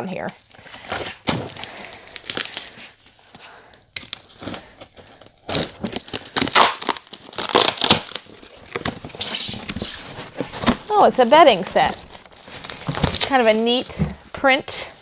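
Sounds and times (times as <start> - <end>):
tape tearing: 0.5 - 3.4, 4.0 - 14.0
box cutter slitting tape: 5.4 - 10.8
cardboard flaps scraping and rustling: 8.6 - 14.2.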